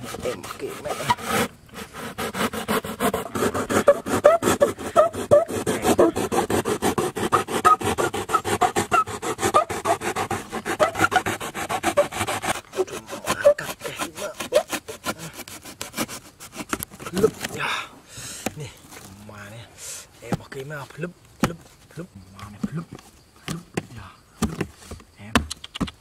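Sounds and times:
knife sawing through cardboard: 0:00.0 - 0:17.6.

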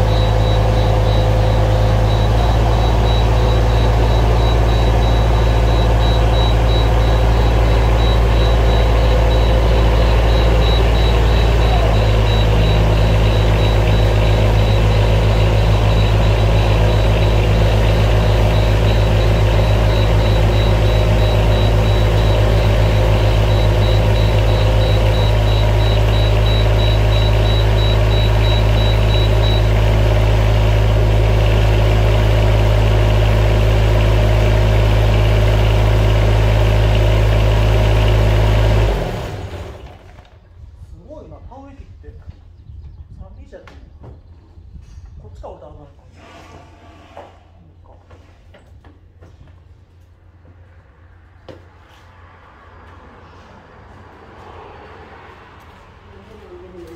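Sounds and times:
engine idling: 0:00.0 - 0:40.5.

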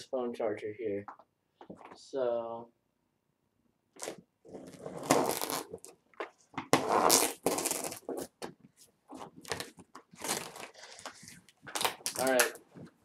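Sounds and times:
packing tape ripping from cardboard: 0:04.0 - 0:05.9, 0:06.7 - 0:08.4, 0:09.4 - 0:12.6.

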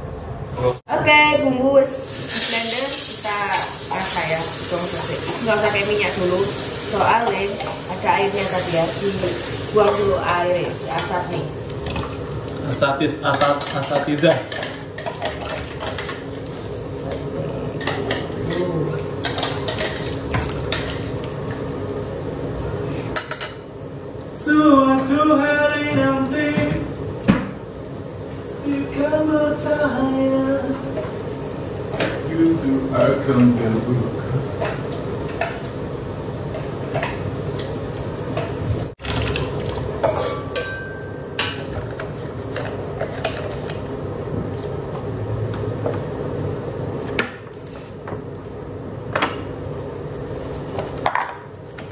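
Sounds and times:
food sizzling in wok: 0:01.9 - 0:17.1, 0:34.1 - 0:44.3
spice paste sizzling in wok: 0:02.0 - 0:12.5.

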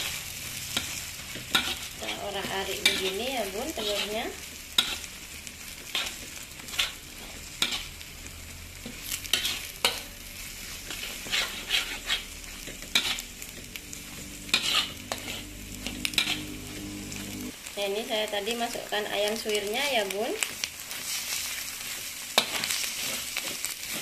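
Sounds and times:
light sizzle of frying egg: 0:00.0 - 0:24.0
plastic spatula scraping pan: 0:10.9 - 0:12.3.

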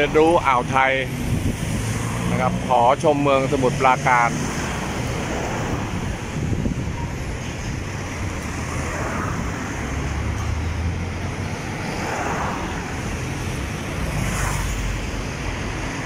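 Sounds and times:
road traffic rumble: 0:00.0 - 0:16.0.

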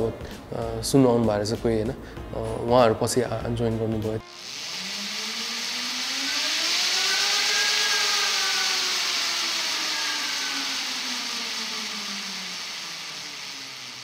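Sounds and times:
electric motor whine: 0:04.2 - 0:14.0
steady hiss: 0:04.2 - 0:14.0.

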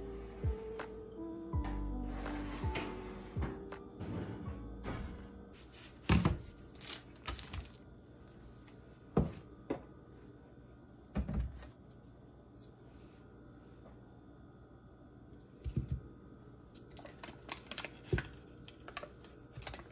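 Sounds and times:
oven door shutting: 0:01.6 - 0:05.5.

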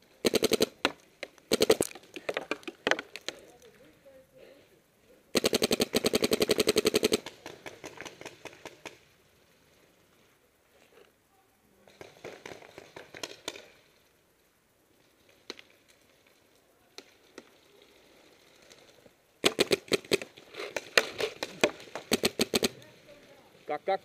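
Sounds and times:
paintball marker rapid firing: 0:00.2 - 0:00.9, 0:01.5 - 0:01.9, 0:05.4 - 0:09.0, 0:19.4 - 0:22.8.

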